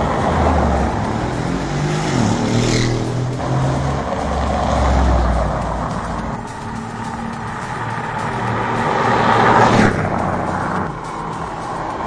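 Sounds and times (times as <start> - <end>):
engine and tyre noise: 0.0 - 12.0.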